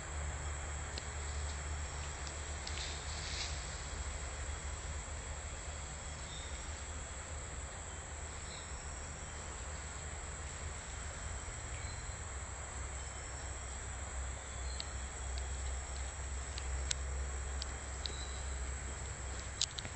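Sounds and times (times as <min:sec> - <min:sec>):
faint clicks: 0:14.7 - 0:18.2, 0:19.4 - 0:19.9.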